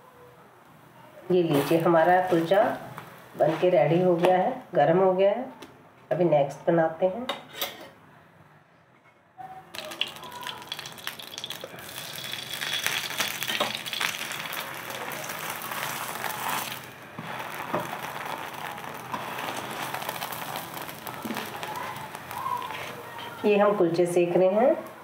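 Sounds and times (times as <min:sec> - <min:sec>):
butter sizzling on a pan: 0:09.8 - 0:24.4.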